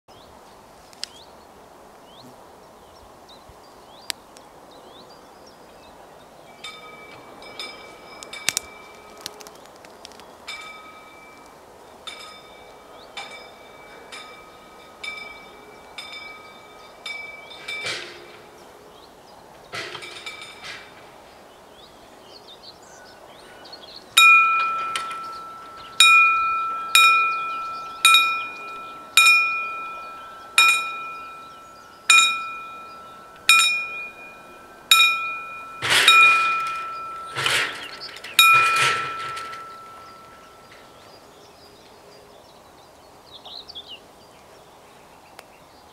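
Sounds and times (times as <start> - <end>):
level crossing warning bell: 6.5 - 9.5, 10.4 - 18.9, 22.8 - 41.5.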